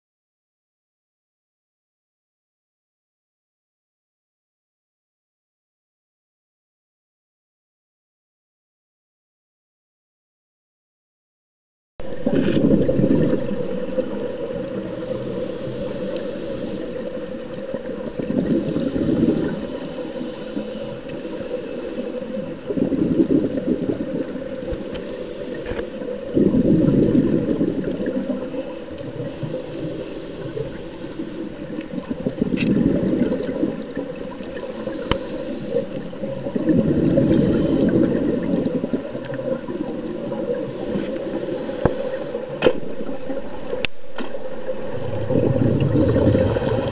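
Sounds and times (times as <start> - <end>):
exhaled bubbles gurgling: 12.0 - 46.9
underwater noise: 12.0 - 46.9
faint clicks: 15.8 - 17.8, 24.6 - 26.0, 34.4 - 36.1.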